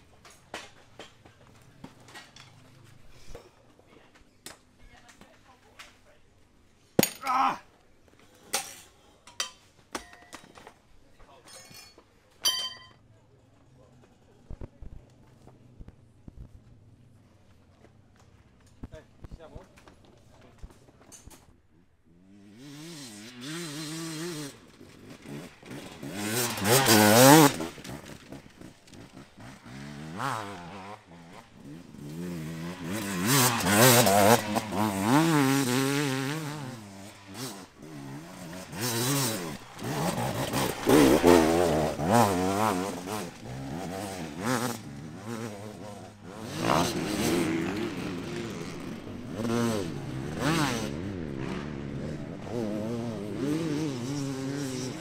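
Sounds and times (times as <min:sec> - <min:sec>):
dirt bike engine revving: 0:22.1 - 0:55.0.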